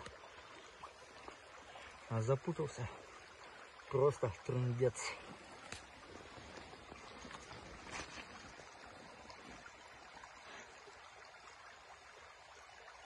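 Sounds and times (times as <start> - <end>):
river water flowing: 0.0 - 13.0
soft rustles: 5.3 - 8.6.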